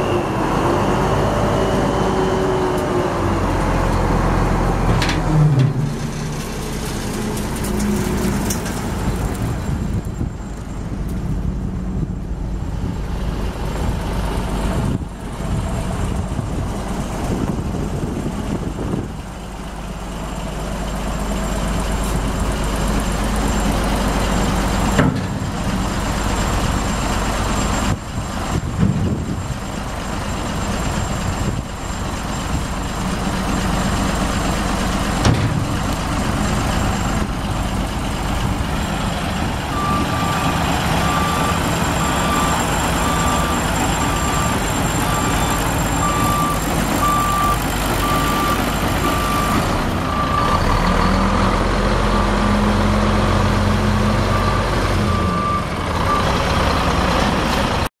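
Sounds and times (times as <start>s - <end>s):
truck backup alarm beeping: 0.0s - 5.0s, 21.0s - 57.9s
diesel truck engine running: 0.0s - 57.9s.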